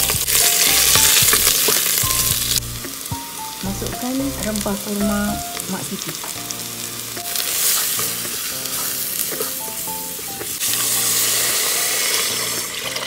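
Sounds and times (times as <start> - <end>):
food sizzling in hot oil: 0.0 - 13.0
water poured into hot pot: 10.6 - 13.0.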